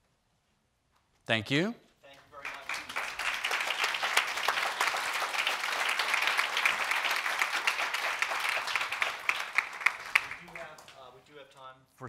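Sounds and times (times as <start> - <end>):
audience applauding: 2.2 - 11.1.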